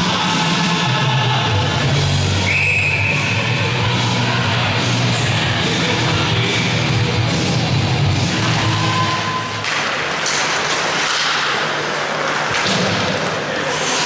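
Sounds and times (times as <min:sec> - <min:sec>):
rock music over loudspeakers: 0:00.0 - 0:09.4
skates scraping on ice: 0:08.2 - 0:14.0.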